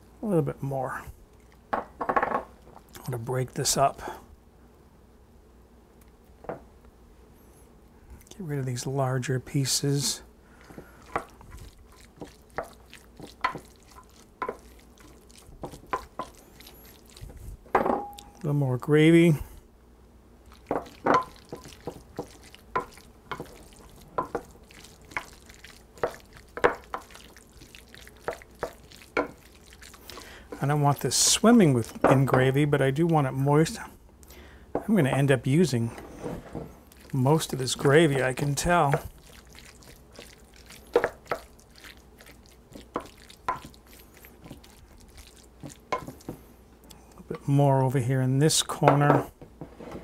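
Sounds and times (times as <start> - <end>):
wooden spoon stirring food: 9.7 - 19.4, 20.4 - 34.0, 34.7 - 47.9.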